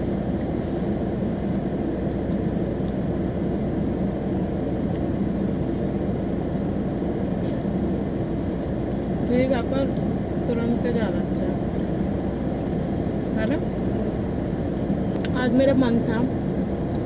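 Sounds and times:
air-conditioning fan: 0:00.0 - 0:17.0
car engine humming: 0:00.0 - 0:17.0.

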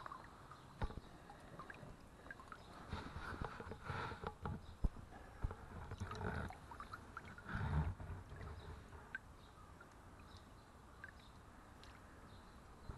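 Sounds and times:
small river running: 0:00.0 - 0:12.9.

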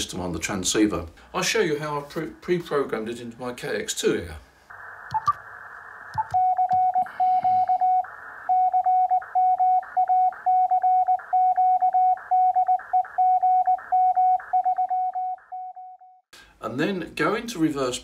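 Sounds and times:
radio receiver hiss: 0:04.7 - 0:09.6
morse code beeps: 0:06.2 - 0:16.2.

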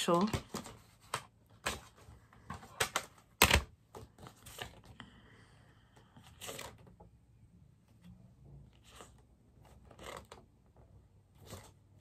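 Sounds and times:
paper rustling: 0:06.3 - 0:07.0.

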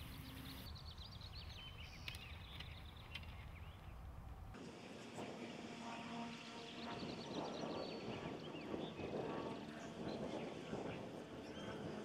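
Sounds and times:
small birds chirping: 0:00.0 - 0:04.0
low wind rumble: 0:00.0 - 0:12.0.

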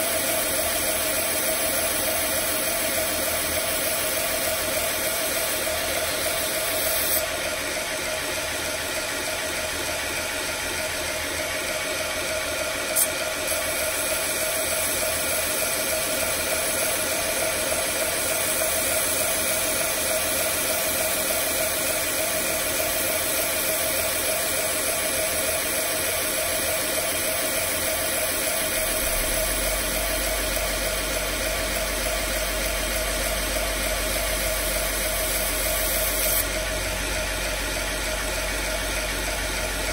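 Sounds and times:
belt grinder grinding knife: 0:00.0 - 0:07.5, 0:25.8 - 0:36.8.

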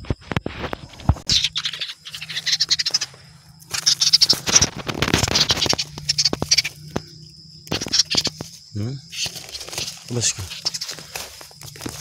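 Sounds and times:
high insect trill: 0:00.0 - 0:12.0
dry leaves crackling and rustling: 0:03.6 - 0:07.0, 0:07.8 - 0:12.0.

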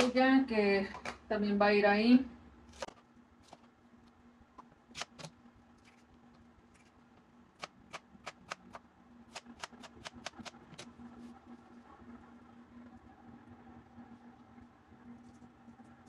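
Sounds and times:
knife chopping on plastic board: 0:07.6 - 0:10.8.

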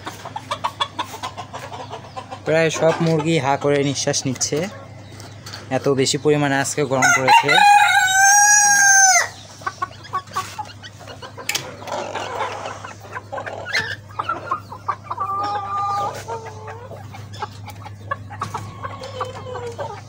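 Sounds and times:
hens clucking: 0:00.0 - 0:20.0
rooster crowing: 0:07.0 - 0:09.4.

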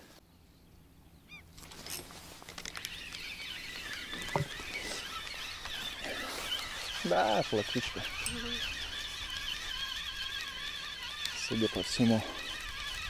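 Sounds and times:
birds calling: 0:00.0 - 0:13.0
waterfowl honking: 0:03.7 - 0:13.0.

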